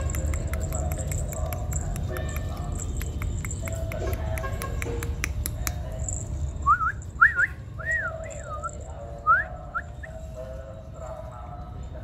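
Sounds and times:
person whistling: 6.6s - 8.2s.

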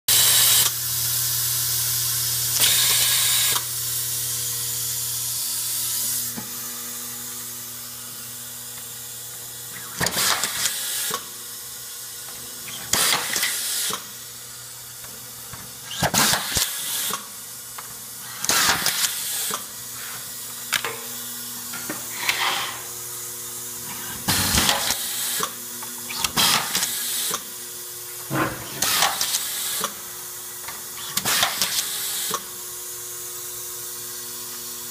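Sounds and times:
pneumatic screwdriver bursts: 0.1s - 0.8s, 2.4s - 3.7s, 9.7s - 11.3s, 12.6s - 14.2s, 15.8s - 17.3s, 18.2s - 19.7s, 23.9s - 27.5s, 28.3s - 30.0s, 30.9s - 32.5s.

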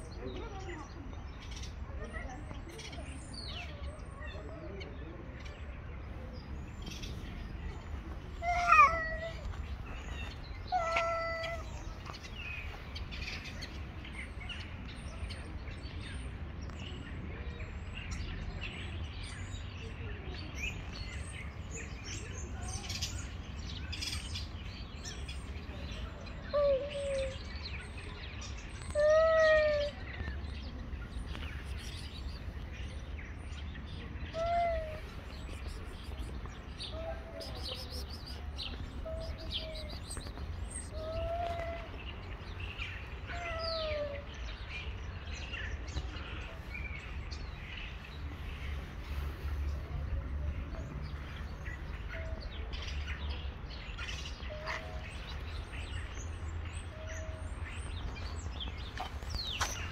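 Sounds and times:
small birds chirping: 0.0s - 59.9s
cat meowing: 8.4s - 9.4s, 10.7s - 11.7s.

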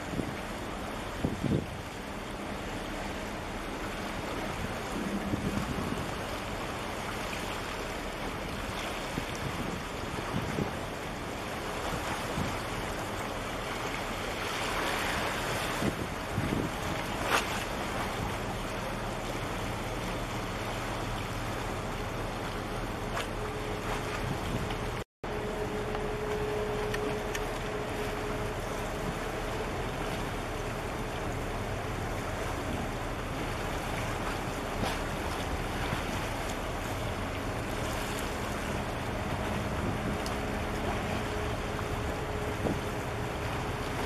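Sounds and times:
faint ship engine hum: 0.0s - 44.0s
water washing against breakwater: 0.0s - 44.0s
wind on microphone: 1.1s - 1.9s, 4.4s - 6.4s, 9.0s - 11.0s, 14.8s - 18.8s, 23.3s - 25.0s, 31.8s - 44.0s.

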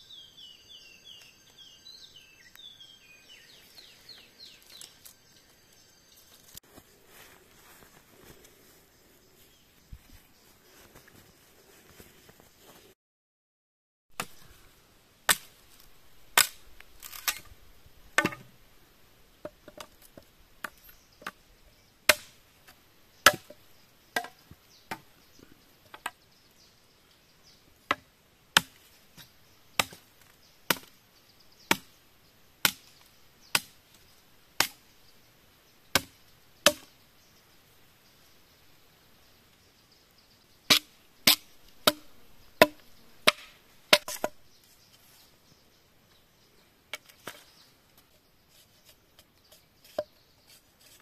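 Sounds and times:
machete chopping bamboo: 14.2s - 14.5s, 15.3s - 17.5s, 18.1s - 18.5s, 22.1s - 22.4s, 23.2s - 23.6s, 24.2s - 25.1s, 28.6s - 31.0s, 31.7s - 32.0s, 32.6s - 33.8s, 34.6s - 34.8s, 35.9s - 36.9s, 40.7s - 44.4s.

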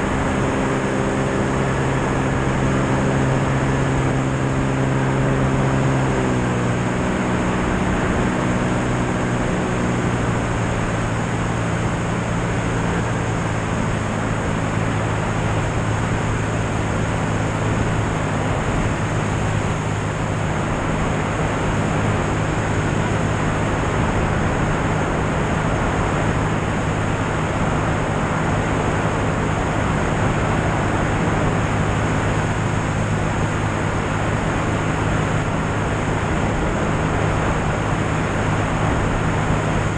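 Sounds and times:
propeller plane engine droning: 0.0s - 39.9s.

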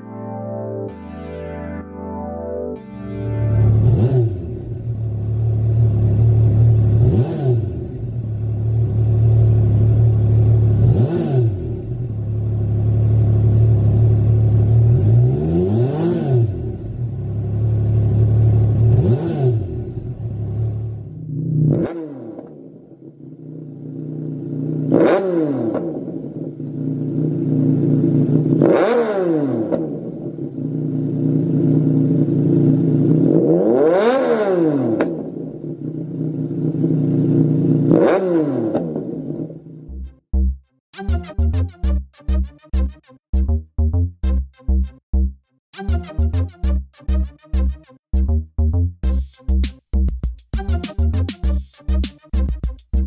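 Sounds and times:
motorcycle engine idling and revving: 3.7s - 40.5s.

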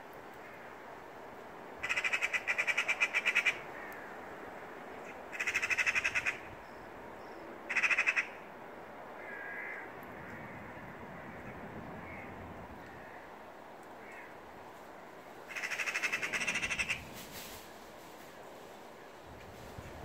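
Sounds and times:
magpies rattling alarm chatter: 5.3s - 6.4s, 15.5s - 17.1s.

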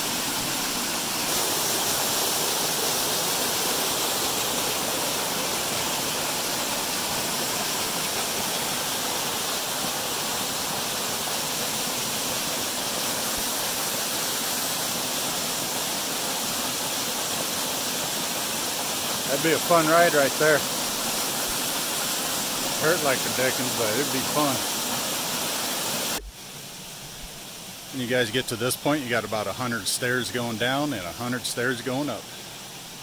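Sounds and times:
waterfall rushing: 0.0s - 26.2s.

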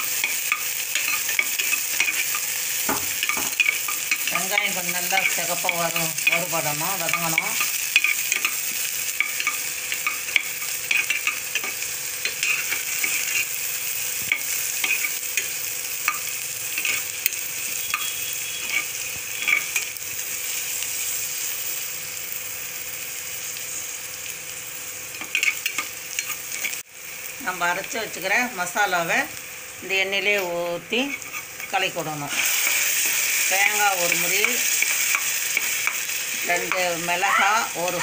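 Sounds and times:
onions sizzling in oil: 0.0s - 38.0s
spatula scraping pot: 9.2s - 13.5s, 31.0s - 36.0s.

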